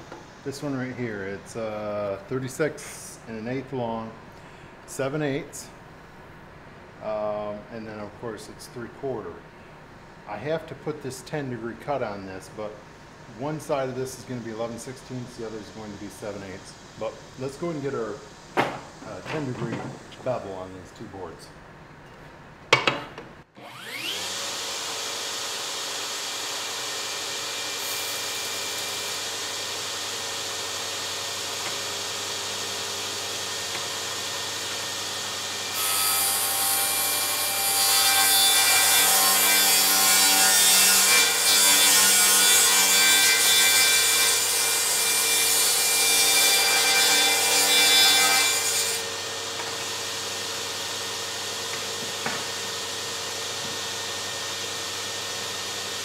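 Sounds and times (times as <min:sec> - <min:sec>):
saw cutting wooden board: 0:23.6 - 0:56.0
table saw running: 0:23.6 - 0:56.0.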